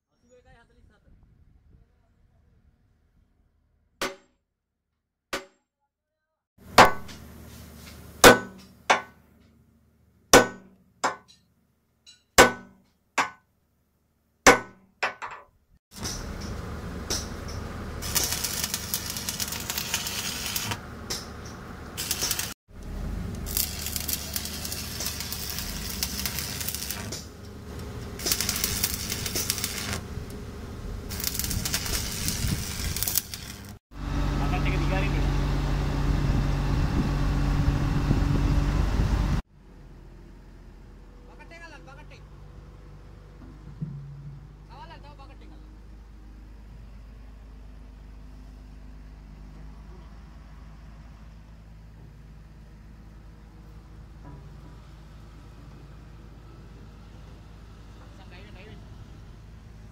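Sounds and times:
sledgehammer striking steel: 0:04.0 - 0:04.3, 0:06.7 - 0:07.3, 0:08.2 - 0:09.2, 0:10.3 - 0:11.5, 0:12.1 - 0:13.4, 0:14.5 - 0:17.7
welding arc sizzling and crackling: 0:15.9 - 0:33.8.

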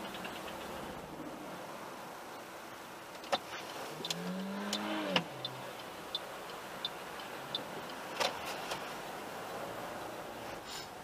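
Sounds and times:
turn signal ticking: 0:00.0 - 0:01.1, 0:03.0 - 0:10.5
idling traffic hum: 0:00.0 - 0:11.0.

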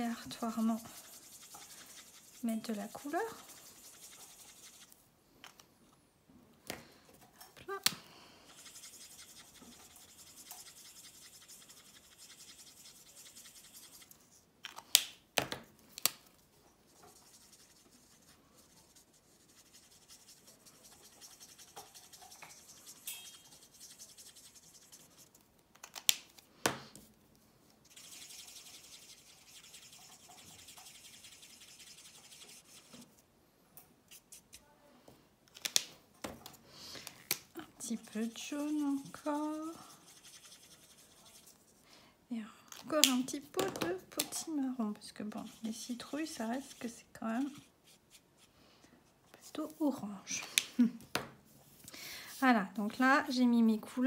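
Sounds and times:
marker tips scratching on card: 0:00.2 - 0:05.0, 0:08.5 - 0:14.4, 0:16.9 - 0:26.0, 0:27.8 - 0:33.0, 0:34.1 - 0:34.6, 0:37.8 - 0:41.7.

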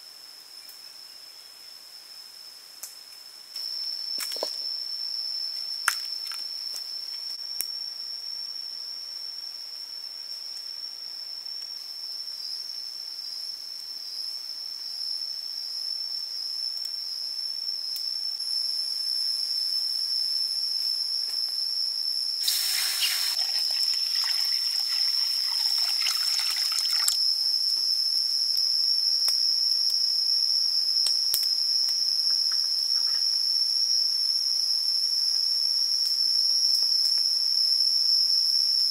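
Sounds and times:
high-pitched insect drone: 0:03.3 - 0:38.9
harsh rasping insect burst: 0:22.4 - 0:27.1.

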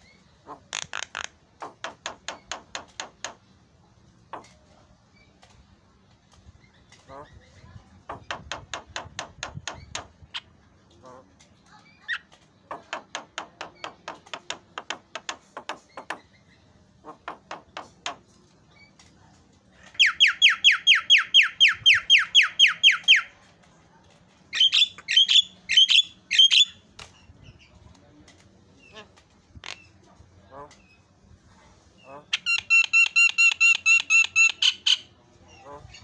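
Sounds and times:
bird calling: 0:24.5 - 0:26.8.

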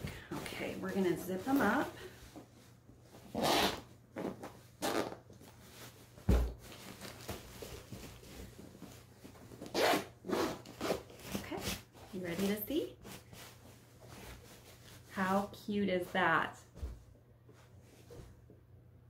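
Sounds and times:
zipper being pulled closed: 0:03.3 - 0:05.2, 0:09.6 - 0:11.8.

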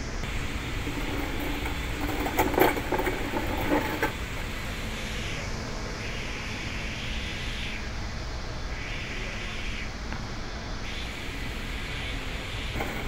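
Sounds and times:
crane engine rumbling: 0:00.0 - 0:13.0
knocks and rattles: 0:00.8 - 0:04.2.

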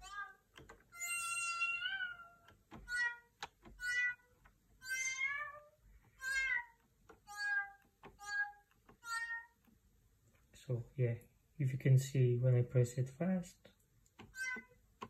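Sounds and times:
synthesized cat meows: 0:01.0 - 0:09.6, 0:14.3 - 0:14.8.

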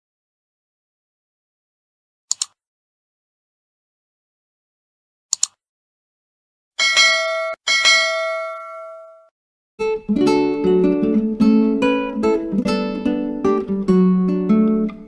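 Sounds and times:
mouse double-click: 0:02.3 - 0:02.6, 0:05.3 - 0:05.6
notification bell dinging: 0:06.8 - 0:09.3.

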